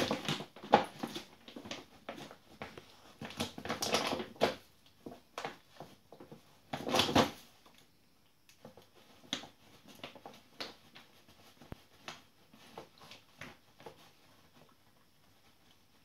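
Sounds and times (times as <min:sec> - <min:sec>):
crinkles and crunches: 0:00.0 - 0:07.8.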